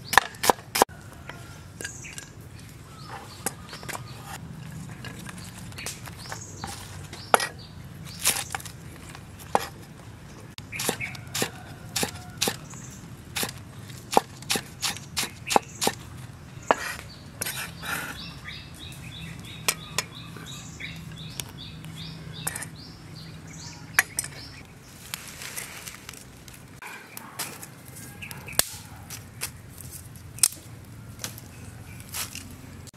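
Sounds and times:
cleaver chopping on wooden block: 0.1 - 0.9, 10.8 - 12.6, 13.4 - 16.0
dry leaves rustling: 1.3 - 9.5, 10.6 - 15.4, 24.6 - 32.9.

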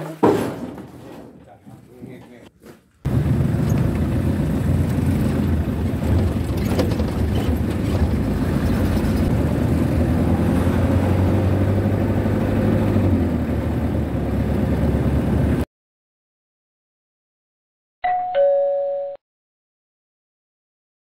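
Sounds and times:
motorcycle engine running: 3.1 - 10.1.

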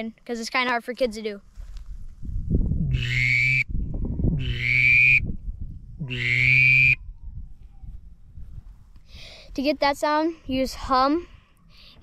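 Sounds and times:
duck call whistle over hum: 2.9 - 3.7, 4.4 - 5.2, 6.0 - 7.0.

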